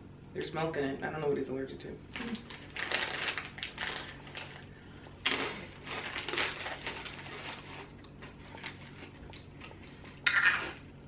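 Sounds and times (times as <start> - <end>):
snack packets crinkling: 2.2 - 10.8
crisps being chewed: 5.2 - 10.8.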